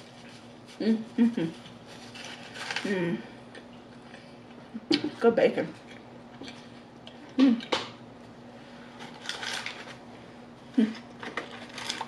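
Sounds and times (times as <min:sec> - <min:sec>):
faint steady hum: 0:00.0 - 0:12.0
rustle of paper packaging: 0:01.8 - 0:03.0, 0:09.0 - 0:10.0.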